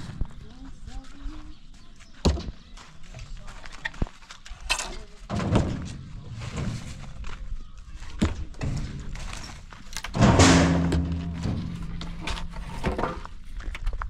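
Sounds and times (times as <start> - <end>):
knocks and thuds: 5.3 - 6.9, 10.1 - 13.2.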